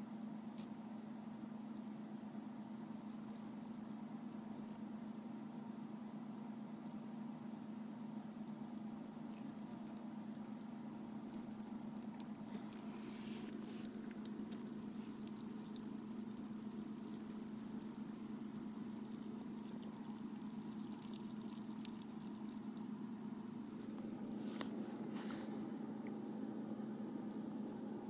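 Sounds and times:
steady low hum: 0:00.0 - 0:28.0
small splashes and ticks: 0:03.0 - 0:04.9, 0:08.4 - 0:24.3
water trickling onto ice: 0:08.7 - 0:23.0.

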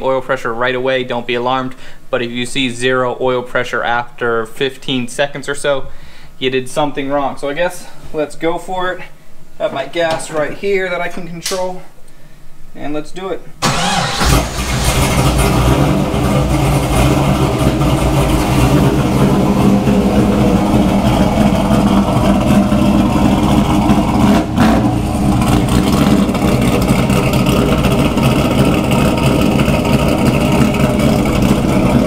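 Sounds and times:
engine running: 0:13.6 - 0:32.0.

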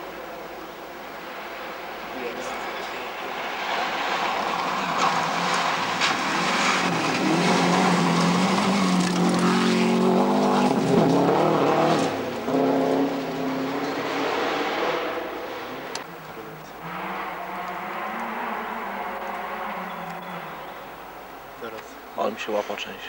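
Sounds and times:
gravel crackling under tyres: 0:00.0 - 0:23.0
rally car engine revving: 0:02.3 - 0:21.1.

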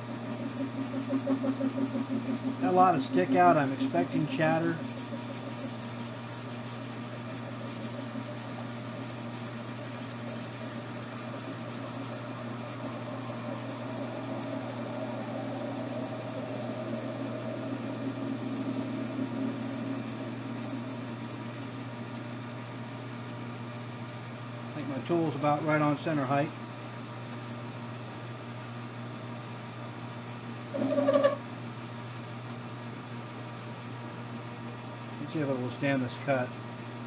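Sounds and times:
metal lathe humming: 0:00.0 - 0:22.9.

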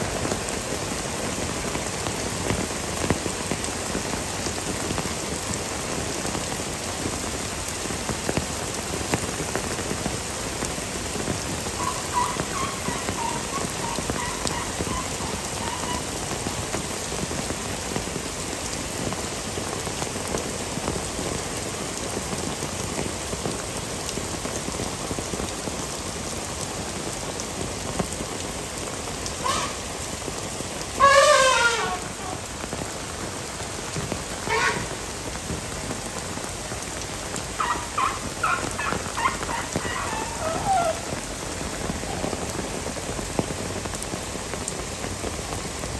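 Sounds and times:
heavy rain pouring: 0:00.0 - 0:45.9
animal call with falling pitch: 0:11.7 - 0:16.6, 0:29.4 - 0:29.9, 0:31.0 - 0:32.5, 0:34.4 - 0:35.0, 0:37.6 - 0:41.3.

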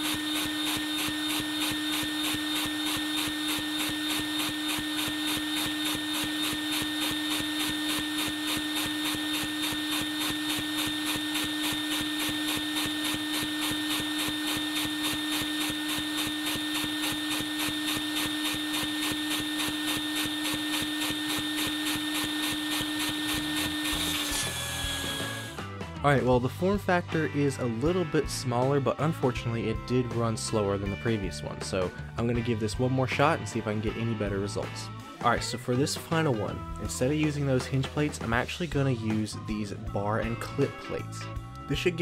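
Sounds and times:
vacuum cleaner whine: 0:00.0 - 0:25.7.

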